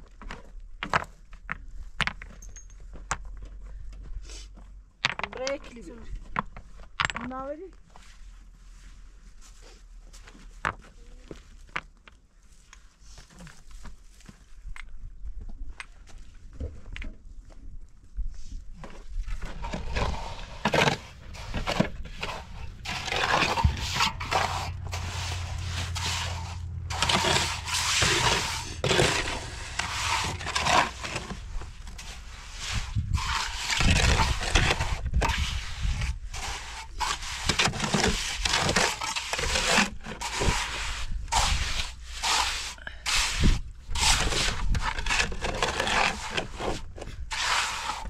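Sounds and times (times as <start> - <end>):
trowel scraping mortar on stones: 19.2 - 48.0
shovel scraping metal wheelbarrow: 19.3 - 48.0.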